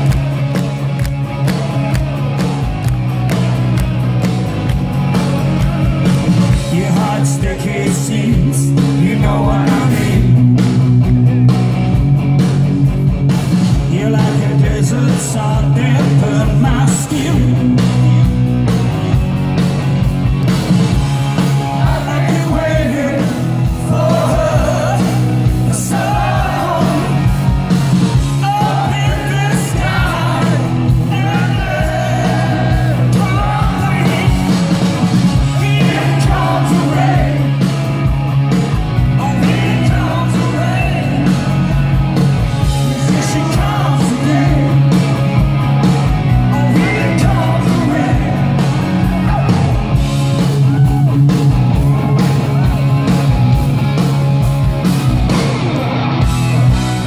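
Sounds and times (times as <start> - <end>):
bass guitar: 0.0 - 57.0
drums: 0.0 - 57.0
electric guitar: 0.0 - 57.0
person singing: 6.6 - 10.4, 46.5 - 49.8.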